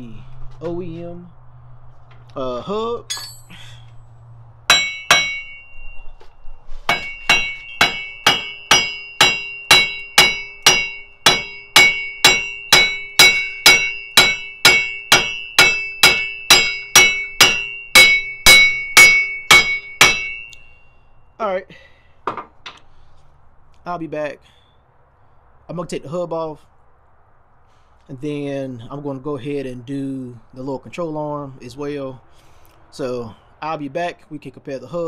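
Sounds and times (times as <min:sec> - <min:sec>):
hammer striking metal hub: 0:03.1 - 0:03.8, 0:04.7 - 0:06.0, 0:06.9 - 0:20.9.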